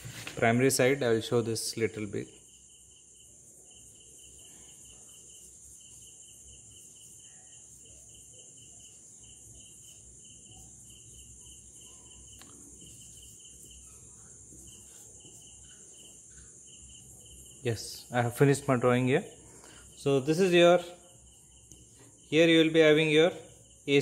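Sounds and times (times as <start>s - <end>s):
marker strokes on whiteboard: 0.0s - 0.7s, 3.4s - 8.2s, 8.9s - 18.0s
crickets chirping: 0.0s - 24.0s
steady high hiss: 0.0s - 24.0s.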